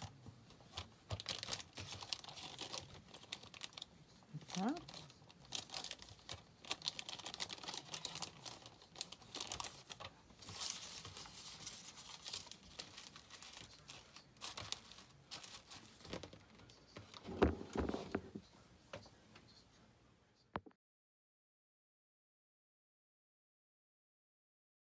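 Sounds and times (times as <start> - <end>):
plastic bags crinkling: 0.6 - 18.4.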